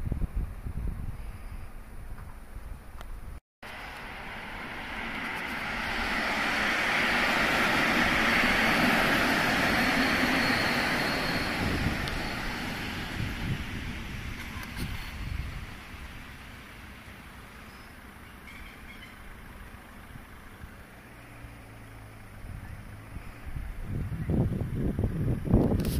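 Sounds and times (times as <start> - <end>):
electric train passing: 3.7 - 21.2.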